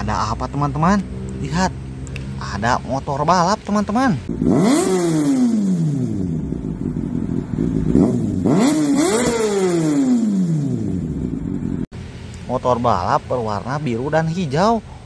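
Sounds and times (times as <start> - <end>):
racing motorcycle revving past: 4.3 - 11.8.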